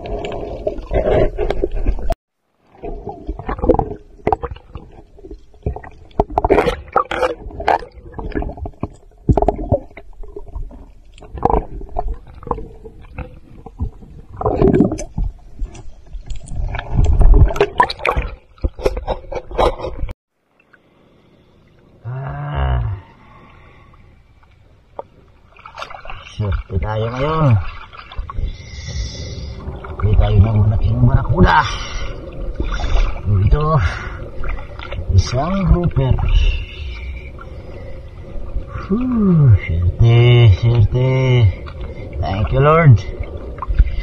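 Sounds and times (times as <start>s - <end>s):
water splashing: 0.0s - 20.9s, 23.0s - 44.0s
muffled groan: 22.0s - 23.2s
breathing through a snorkel: 28.4s - 29.8s, 43.7s - 44.0s.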